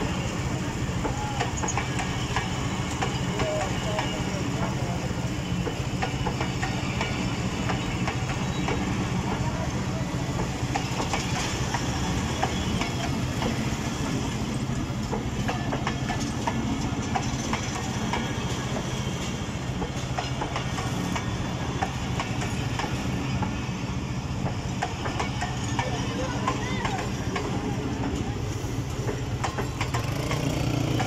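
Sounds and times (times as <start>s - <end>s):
train wheels rumbling on rails: 0.0s - 31.0s
wheels clicking over rail joints: 0.7s - 5.0s, 10.3s - 23.6s, 24.4s - 31.0s.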